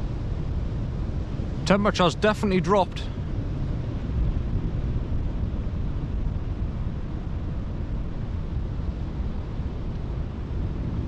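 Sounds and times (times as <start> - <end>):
wind buffeting microphone: 3.0 - 11.0.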